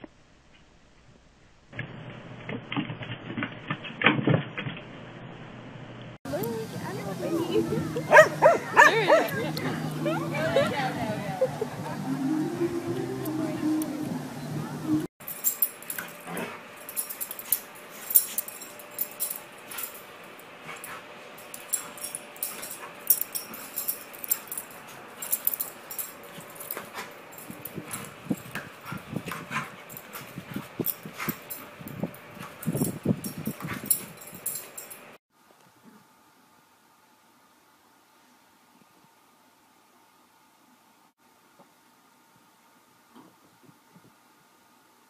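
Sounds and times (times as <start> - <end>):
dog whimpering and yipping: 8.0 - 9.4.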